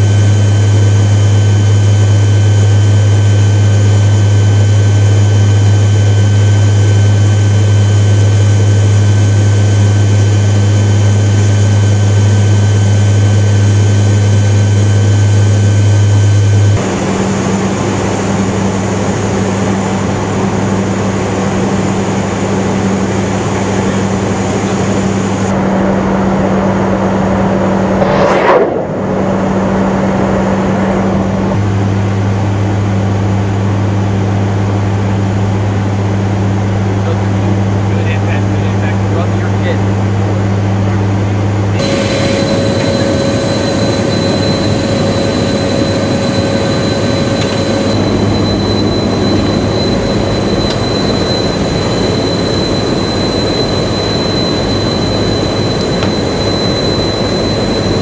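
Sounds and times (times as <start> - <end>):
turboprop engines droning: 0.0 - 58.0
loud whoosh: 27.6 - 31.6.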